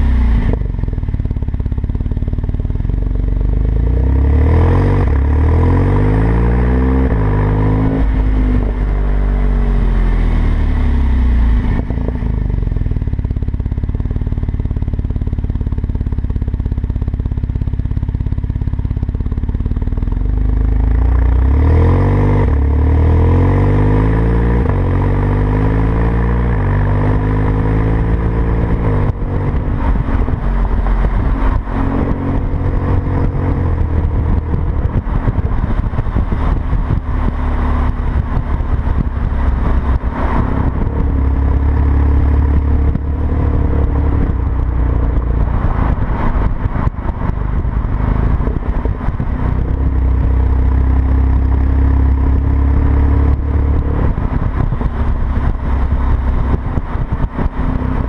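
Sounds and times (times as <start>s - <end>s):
road and wind rush: 0.0s - 58.0s
car engine accelerating: 19.8s - 58.0s.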